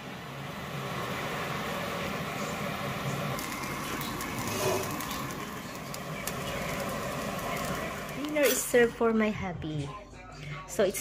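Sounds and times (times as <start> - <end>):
food sizzling in a pan: 2.4 - 8.8
crackles and pops: 3.3 - 8.8.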